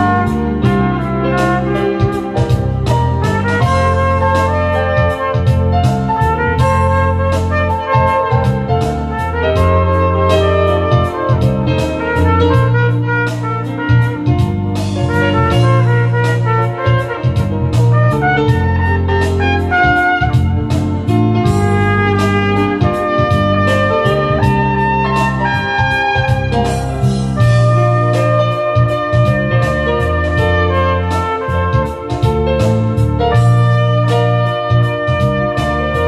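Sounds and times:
backing track with bass and drums: 0.0s - 36.0s
trumpet playing melody: 0.0s - 36.0s.

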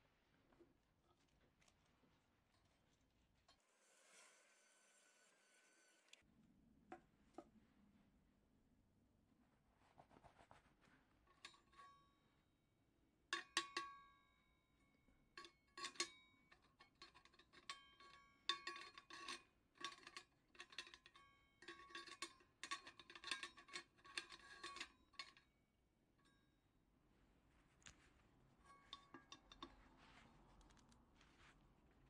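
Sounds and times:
metal clinking and knocking: 28.6s - 30.2s.

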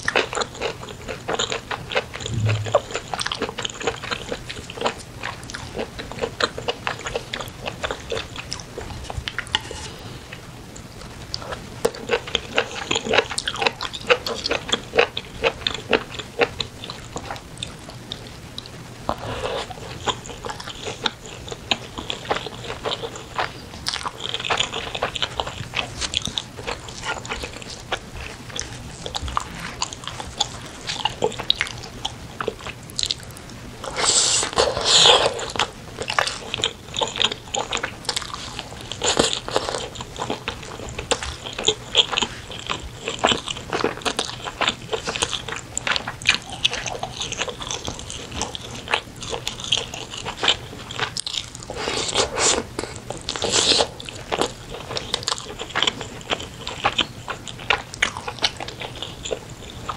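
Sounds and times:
wet chewing and biting: 19.6s - 59.9s.

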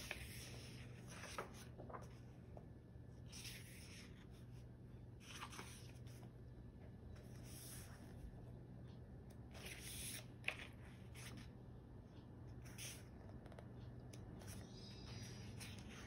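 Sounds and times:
book pages turning: 0.0s - 2.6s, 3.2s - 4.6s, 5.2s - 6.4s, 9.4s - 11.6s, 12.6s - 16.0s
low steady hum: 0.0s - 16.0s.

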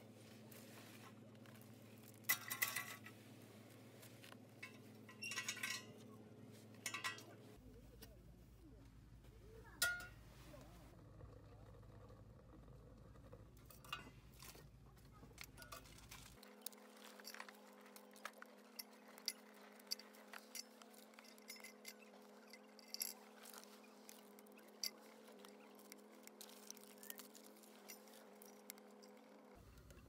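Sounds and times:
light metallic clinks: 6.8s - 7.4s, 9.8s - 10.2s, 15.4s - 29.6s.

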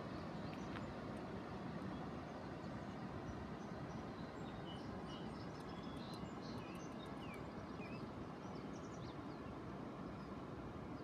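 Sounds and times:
small birds chirping: 4.2s - 9.4s.

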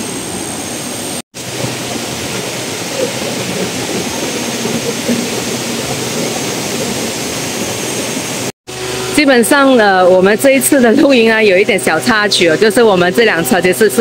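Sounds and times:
stream rushing over stones: 1.4s - 8.5s.

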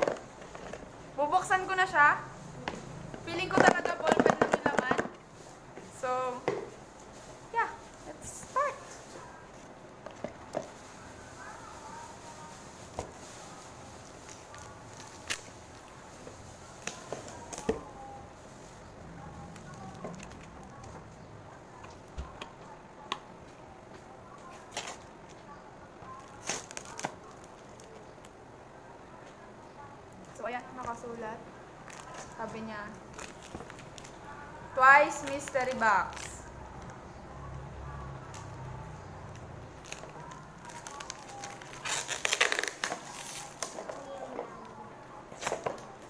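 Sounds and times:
packaging crinkling: 7.1s - 21.0s, 26.1s - 28.3s, 31.8s - 37.0s, 39.3s - 44.2s.

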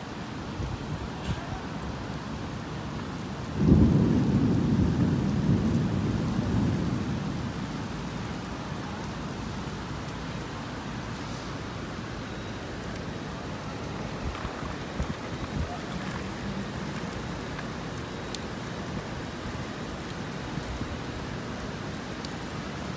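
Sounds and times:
heavy rain hissing: 0.0s - 22.9s
thunder rumbling: 3.5s - 10.8s, 12.4s - 19.9s.

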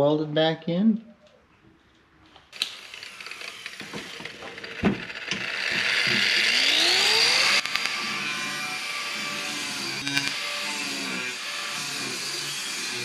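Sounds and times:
clicks and rasping: 2.3s - 8.1s
angle grinder grinding steel: 2.6s - 13.0s.

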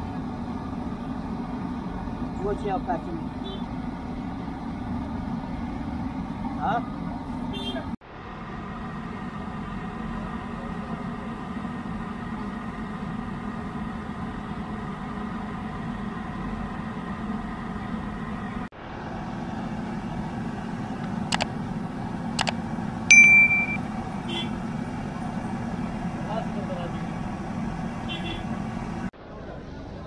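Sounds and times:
engine-like drone: 0.0s - 30.0s
sharp clicks: 21.0s - 21.5s
shrill beep: 23.1s - 23.8s.

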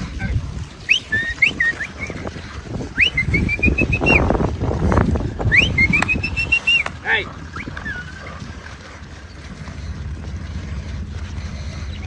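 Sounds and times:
low rumbling noise: 0.0s - 12.0s
whistled call: 0.8s - 2.2s, 2.9s - 4.3s, 5.5s - 8.3s.

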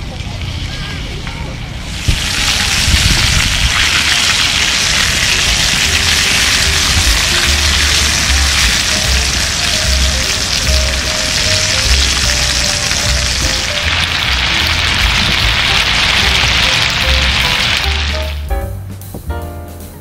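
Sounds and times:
meat sizzling in a frying pan: 1.9s - 18.4s
background music with bass beat: 6.0s - 20.0s.

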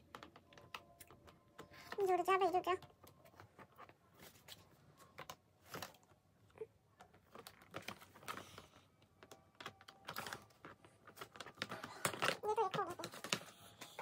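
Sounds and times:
plastic parts clicking together: 7.0s - 14.0s.

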